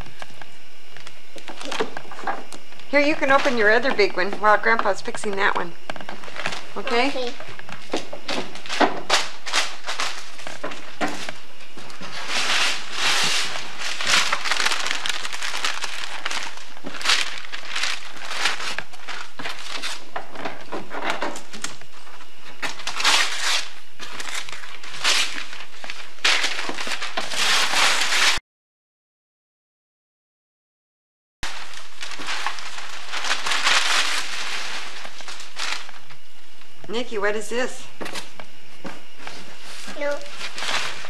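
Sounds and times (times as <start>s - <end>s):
wrapping paper rustling and tearing: 1.0s - 2.3s, 6.0s - 28.4s, 31.4s - 36.2s, 39.2s - 41.0s.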